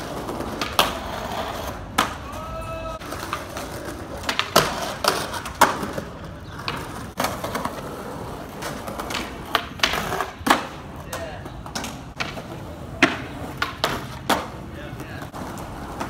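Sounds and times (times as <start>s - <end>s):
skateboard clacking on ledge: 0.0s - 16.0s
skateboards rolling on concrete: 0.0s - 16.0s.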